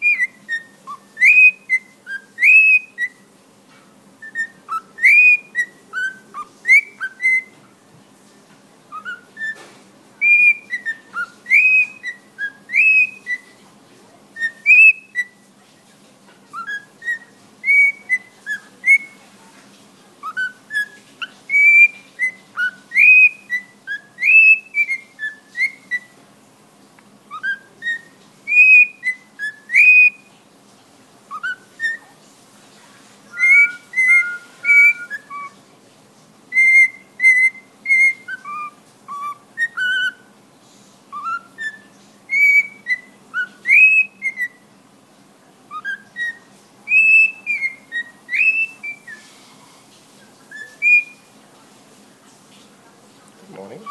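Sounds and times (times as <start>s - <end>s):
cockatiel whistling a tune: 0.0s - 3.3s, 4.2s - 7.6s, 8.9s - 13.6s, 14.3s - 15.4s, 16.5s - 19.2s, 20.2s - 26.2s, 27.3s - 30.4s, 31.3s - 32.2s, 33.3s - 35.6s, 36.5s - 40.4s, 41.1s - 44.7s, 45.7s - 49.3s, 50.5s - 51.3s.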